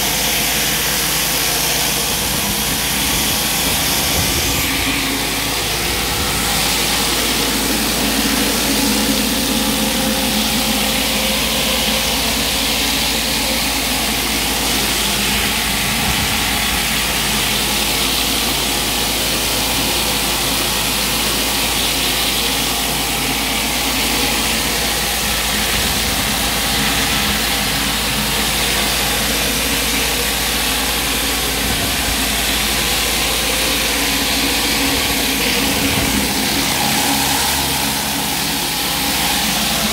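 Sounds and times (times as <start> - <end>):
pressure washer running: 0.0 - 39.9
surface cleaner hissing: 0.0 - 39.9.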